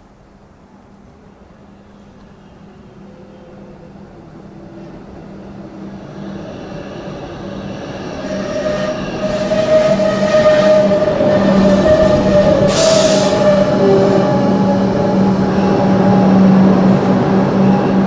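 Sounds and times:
electric train pulling in: 0.4s - 18.0s.

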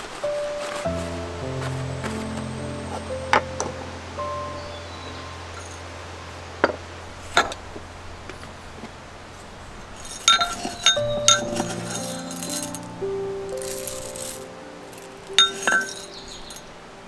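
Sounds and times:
soft background music: 0.0s - 9.2s, 10.3s - 17.0s
small hard objects clinking: 10.0s - 12.9s, 13.6s - 16.6s.

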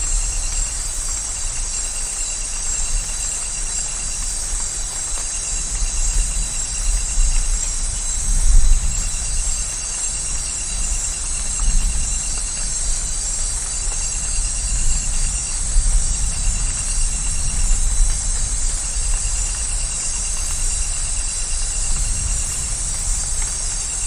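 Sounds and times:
rain hissing: 0.0s - 24.0s.

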